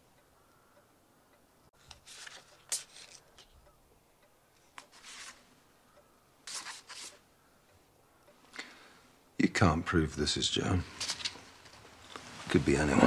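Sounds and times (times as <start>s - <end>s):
paper rustling and sliding: 1.8s - 3.2s, 4.8s - 5.4s, 6.5s - 7.2s, 10.9s - 13.0s.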